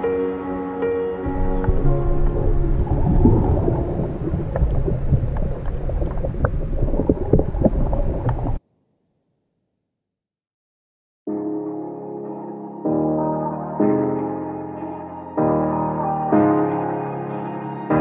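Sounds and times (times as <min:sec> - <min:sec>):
faint music: 0:00.0 - 0:04.4
rumbling crackling underwater noise: 0:01.3 - 0:08.6.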